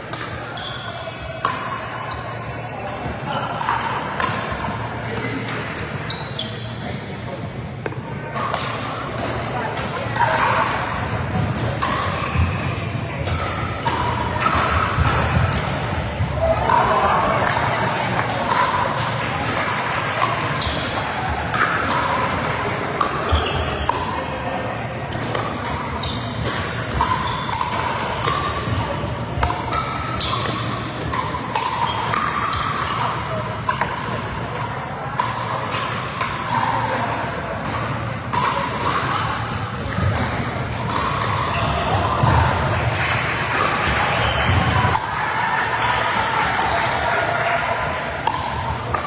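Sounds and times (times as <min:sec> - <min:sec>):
indistinct chatter: 0:00.0 - 0:49.0
ball bouncing on court: 0:23.0 - 0:24.1, 0:39.8 - 0:42.7.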